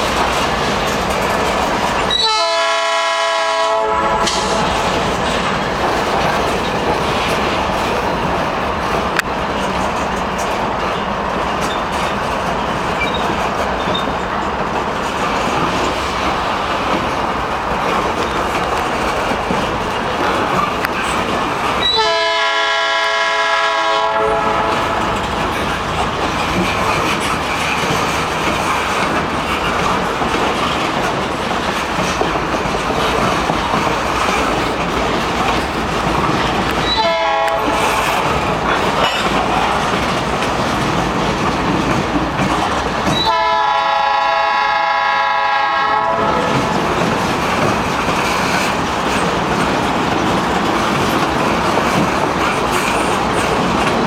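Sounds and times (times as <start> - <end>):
train wheels clickety-clack: 0.0 - 54.0
locomotive horn blasts: 2.1 - 4.8, 21.8 - 25.2, 36.9 - 38.0, 43.2 - 46.6.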